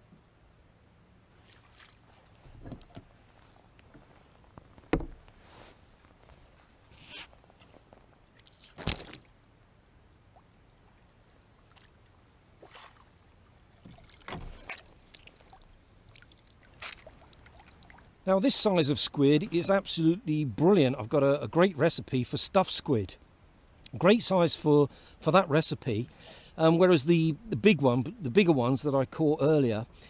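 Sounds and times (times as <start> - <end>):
sharp knocks: 4.9 - 5.2.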